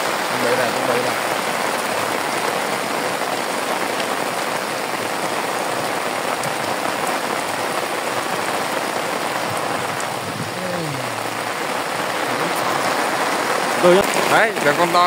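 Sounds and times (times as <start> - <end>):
heavy rain on lake and umbrella: 0.0 - 15.0
raindrop ticks: 11.1 - 15.0.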